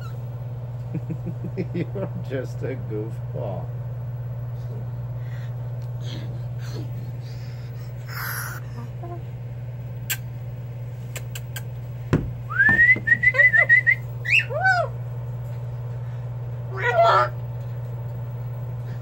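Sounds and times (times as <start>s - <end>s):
steady low hum: 0.0s - 19.0s
thump: 12.1s - 13.1s
cockatoo whistling: 12.5s - 14.9s.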